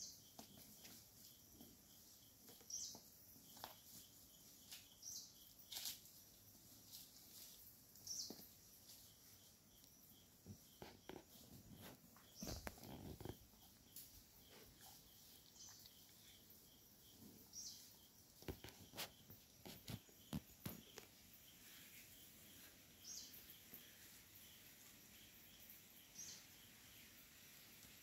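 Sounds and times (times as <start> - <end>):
faint insect pulse: 0.0 - 28.0
rustles in undergrowth: 3.5 - 9.7, 17.6 - 25.4.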